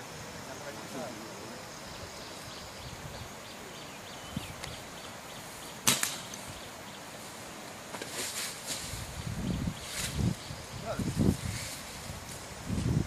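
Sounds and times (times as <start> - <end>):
dart gun shot: 5.8 - 6.3.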